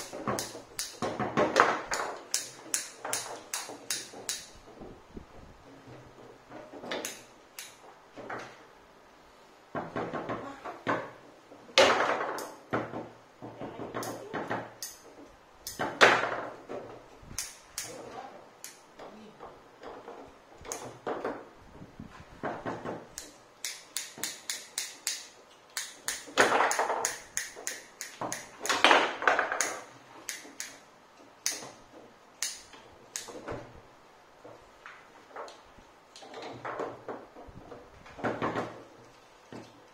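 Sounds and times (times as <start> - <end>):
foosball ball clacking: 0.0 - 4.8, 9.8 - 17.1, 22.4 - 30.8
foosball rods knocking: 0.0 - 8.8, 9.7 - 39.9.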